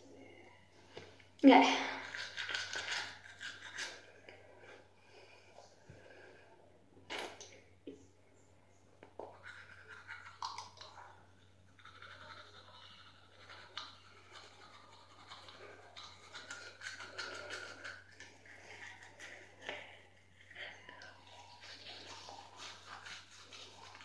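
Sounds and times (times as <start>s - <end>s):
faint low hum: 0.0s - 24.0s
toothbrush scrubbing teeth: 1.8s - 4.8s, 9.1s - 24.0s.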